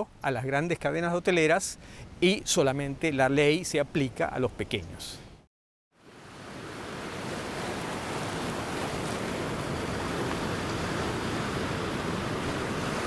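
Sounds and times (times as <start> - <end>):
rushing outdoor ambient noise: 6.0 - 13.0.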